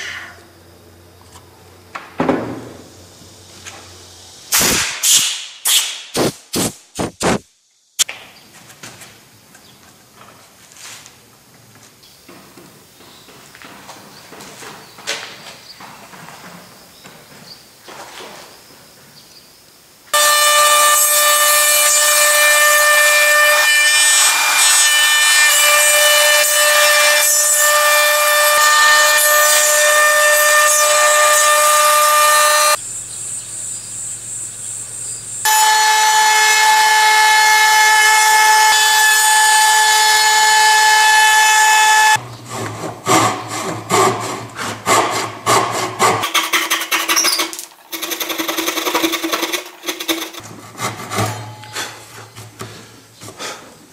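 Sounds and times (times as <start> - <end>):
handsaw cutting wood: 42.4 - 51.4.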